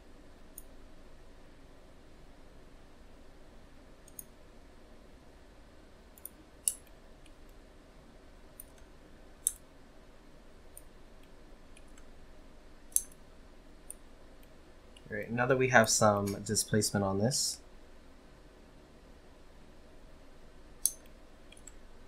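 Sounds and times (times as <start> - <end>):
faint background hum: 0.0 - 22.0
computer mouse clicks: 4.0 - 4.4, 6.2 - 7.6, 8.6 - 9.6, 10.7 - 12.1, 20.8 - 21.8.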